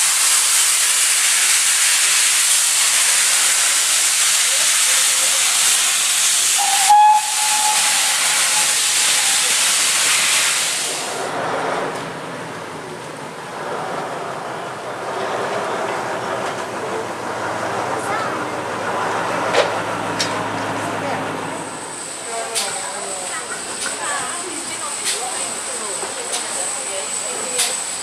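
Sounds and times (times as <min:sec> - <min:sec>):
steam locomotive venting steam: 0:00.0 - 0:20.5, 0:21.3 - 0:28.0
locomotive whistle: 0:06.5 - 0:09.5.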